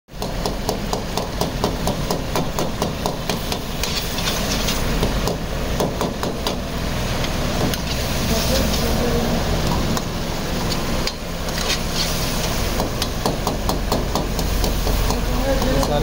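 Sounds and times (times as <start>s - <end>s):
metal ladle scraping wok: 3.7s - 5.0s, 7.0s - 9.1s, 10.5s - 12.8s.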